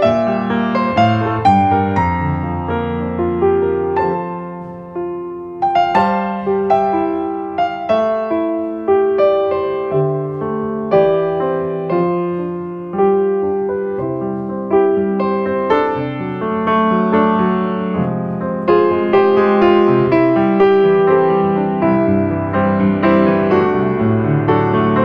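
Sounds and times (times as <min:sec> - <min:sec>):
slow piano melody: 0:00.0 - 0:25.0.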